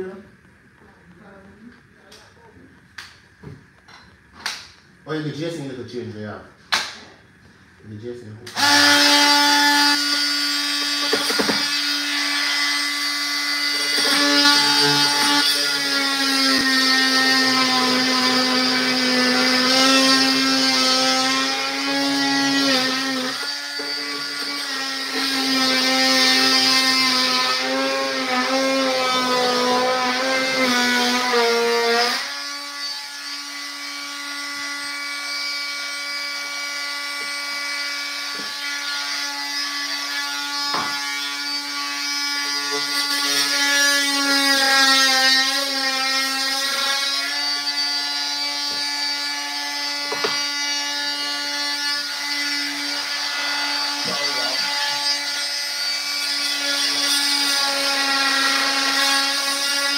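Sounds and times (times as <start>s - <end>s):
power tool buzzing: 8.4s - 59.9s.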